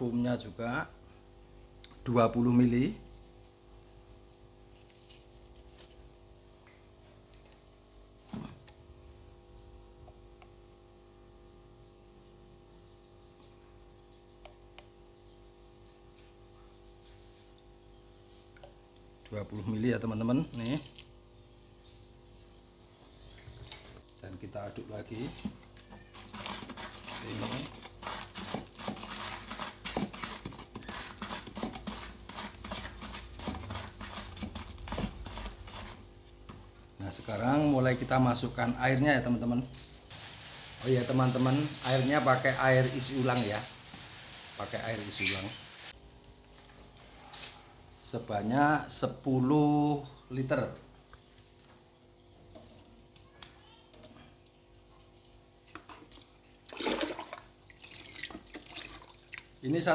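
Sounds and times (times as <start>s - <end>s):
stick stirring paste in bucket: 25.1s - 39.4s
water sloshing in plastic bucket: 55.8s - 59.6s.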